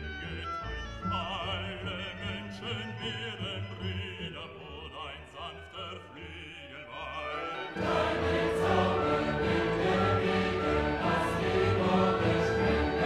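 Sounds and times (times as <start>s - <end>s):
operatic voice with vibrato: 0.0s - 13.0s
choral singing: 7.1s - 13.0s
low orchestral notes: 7.3s - 13.0s.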